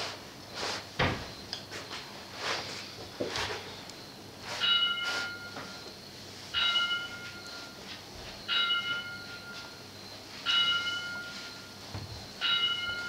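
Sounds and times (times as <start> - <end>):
bell ringing: 4.6 - 5.8, 6.5 - 7.8, 8.4 - 13.0.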